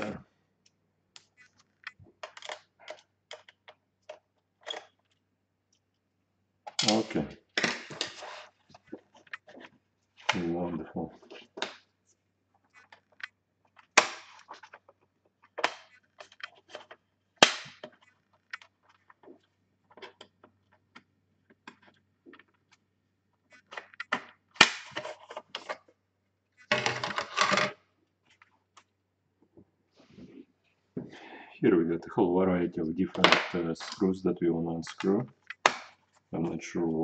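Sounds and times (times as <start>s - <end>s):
plastic clatter: 26.6s - 28.5s.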